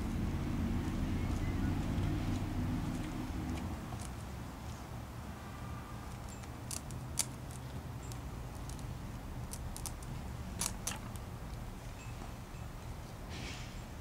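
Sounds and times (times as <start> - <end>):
plastic stems clicking and crinkling: 6.1 - 8.9, 9.5 - 11.6.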